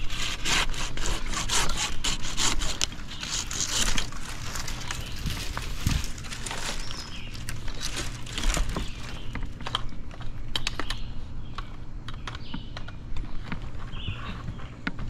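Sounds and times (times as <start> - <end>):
dry branches cracking: 1.0 - 11.0.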